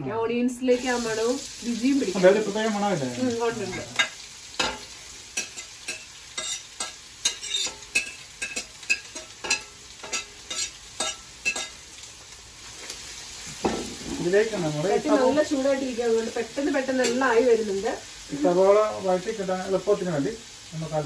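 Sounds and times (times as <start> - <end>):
onions sizzling in oil: 0.6 - 21.0
spoon scraping and tapping plate: 5.4 - 11.8.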